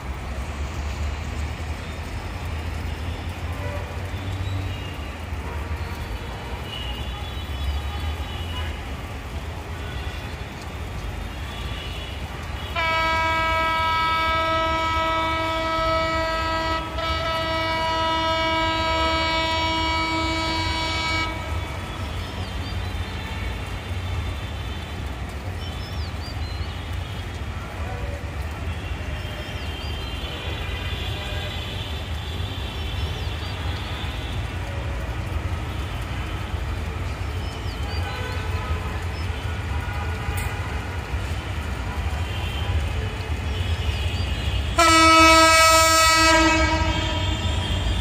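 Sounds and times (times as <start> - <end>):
locomotive air horn blasts: 11.5 - 22.2, 41.8 - 48.0.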